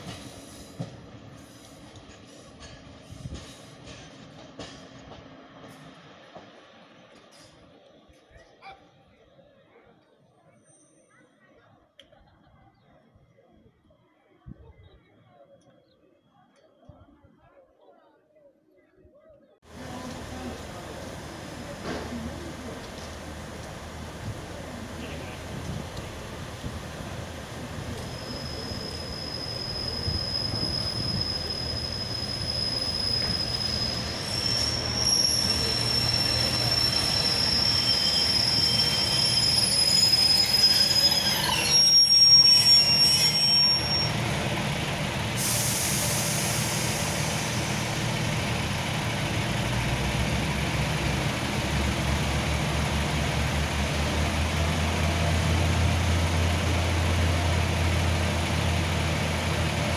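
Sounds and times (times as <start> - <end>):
train brakes squealing: 10.5 - 11.4, 27.5 - 44.3, 45.4 - 48.0
train engine idling: 19.7 - 39.8.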